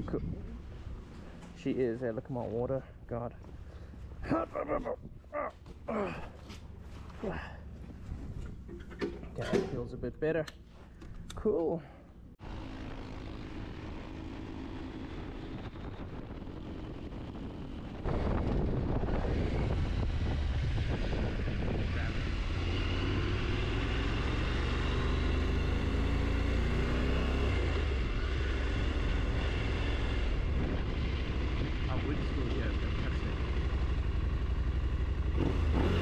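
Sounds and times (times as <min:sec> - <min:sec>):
wind and road noise: 0:00.0 - 0:36.0
motorcycle engine: 0:12.4 - 0:36.0.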